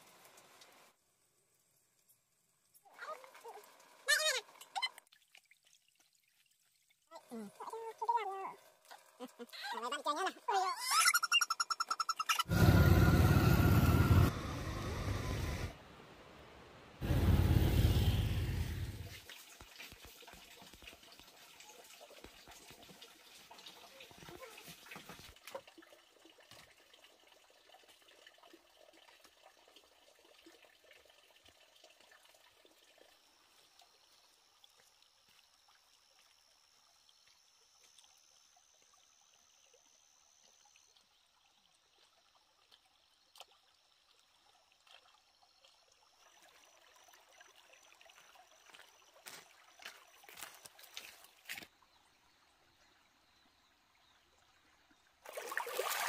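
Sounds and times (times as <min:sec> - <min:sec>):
stream trickling: 0:00.0 - 0:12.6, 0:19.0 - 0:56.0.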